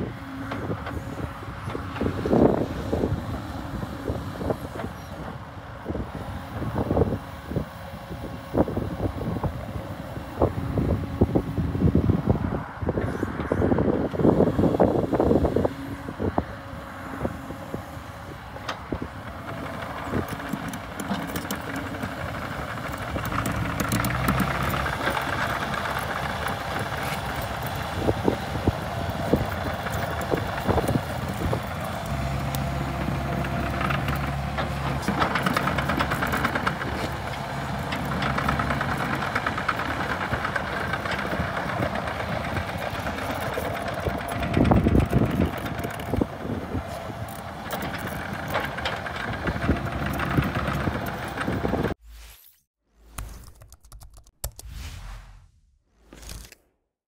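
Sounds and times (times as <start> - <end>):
excavator diesel engine running: 0.0 - 52.0.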